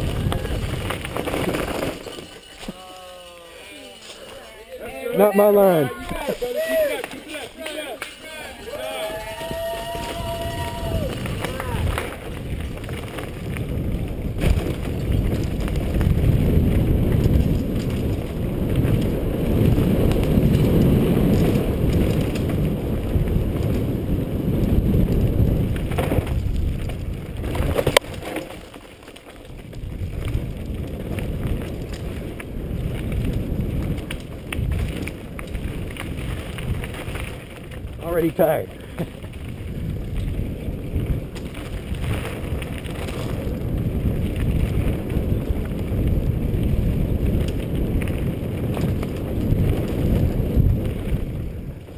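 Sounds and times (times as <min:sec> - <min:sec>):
wind on microphone: 0:00.0 - 0:02.0, 0:08.6 - 0:28.3, 0:29.5 - 0:51.9
tyres rumbling on dirt: 0:05.1 - 0:51.9
bike knocking over bumps: 0:09.4 - 0:38.0.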